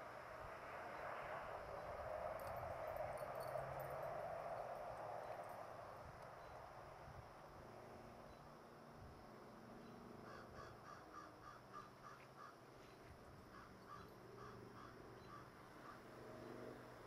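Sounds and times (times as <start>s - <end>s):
faint bird calls: 9.8s - 16.6s.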